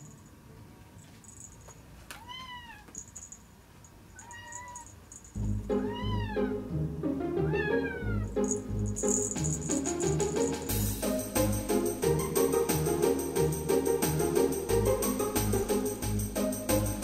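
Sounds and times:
cat meowing: 2.1s - 3.0s, 4.1s - 5.0s, 5.8s - 6.6s, 7.4s - 8.4s
background music: 5.4s - 17.0s.

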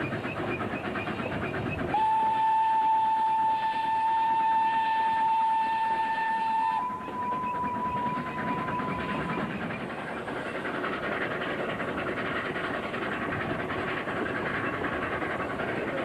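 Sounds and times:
locomotive steam exhaust: 0.0s - 16.0s
train wheels on rails: 0.0s - 16.0s
steam whistle: 1.8s - 9.2s.

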